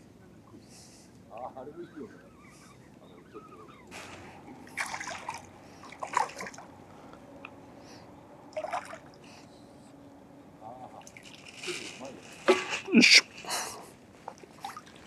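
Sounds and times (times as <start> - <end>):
fish splashing at water surface: 4.0 - 6.7, 8.6 - 9.2, 11.0 - 11.8.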